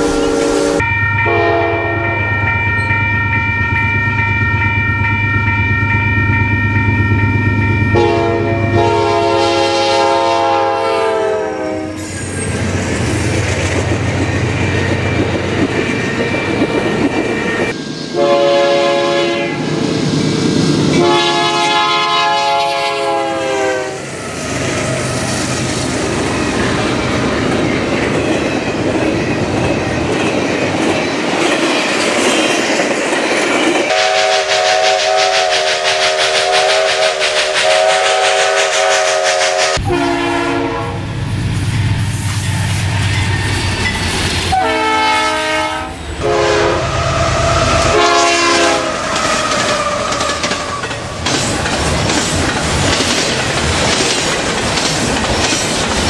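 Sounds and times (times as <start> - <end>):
train horn blasts: 0.0 - 2.3, 7.9 - 12.1, 18.1 - 19.7, 20.9 - 25.2, 33.9 - 41.1, 44.5 - 50.8
train wheels clacking on rails: 12.0 - 17.8, 24.5 - 39.9, 47.5 - 56.0.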